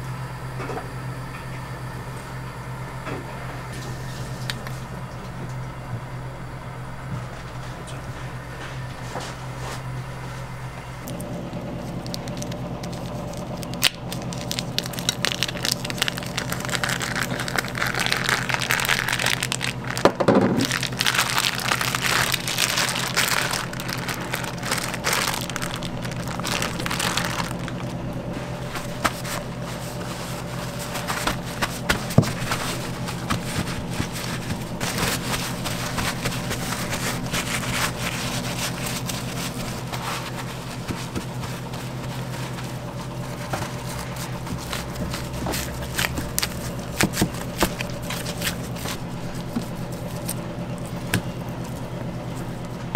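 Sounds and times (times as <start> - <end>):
steady kitchen hum: 0.0 - 52.9
plastic vacuum pack crinkling: 11.0 - 52.8.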